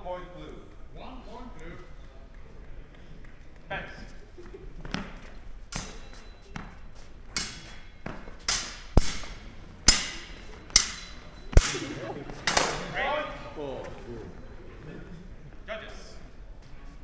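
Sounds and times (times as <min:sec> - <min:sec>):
saber blades striking: 0:08.5 - 0:12.9.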